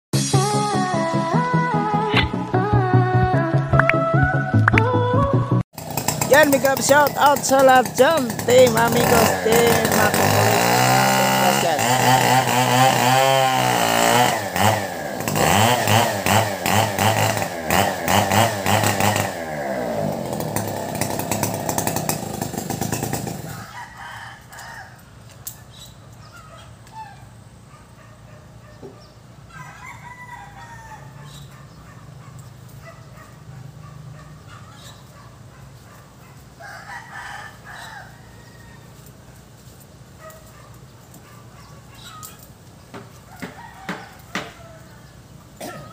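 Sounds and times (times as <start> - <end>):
chainsaw cutting wood: 5.8 - 25.5, 42.0 - 44.7
chickens calling: 23.3 - 45.9
rooster crowing: 23.4 - 25.1, 29.5 - 31.4, 36.6 - 39.2, 43.2 - 45.9.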